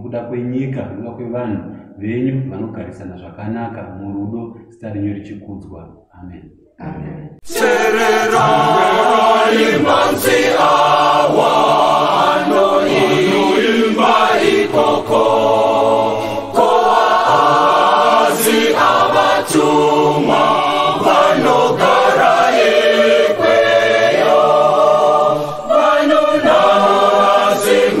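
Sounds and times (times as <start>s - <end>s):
choir singing in harmony: 7.4s - 28.0s.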